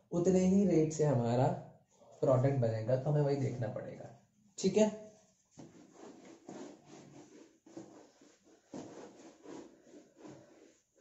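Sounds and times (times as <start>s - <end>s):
duster rubbing whiteboard: 5.6s - 11.0s.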